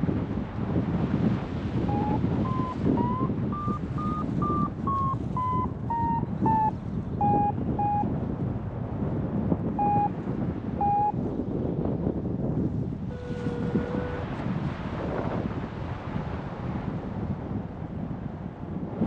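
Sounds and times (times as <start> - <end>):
wind on microphone: 0.0 - 19.0
variometer short beeps: 1.9 - 8.1, 9.8 - 10.2, 10.8 - 11.2.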